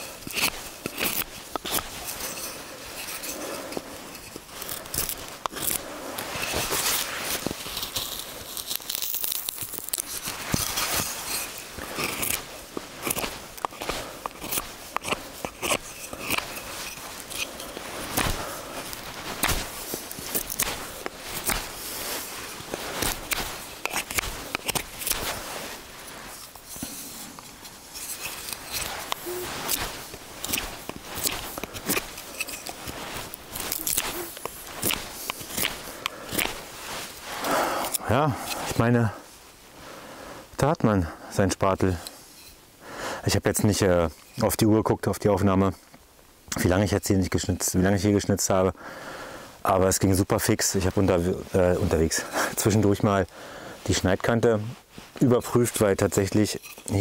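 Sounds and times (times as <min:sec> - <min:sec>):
knife carving wood: 0:00.0 - 0:38.8.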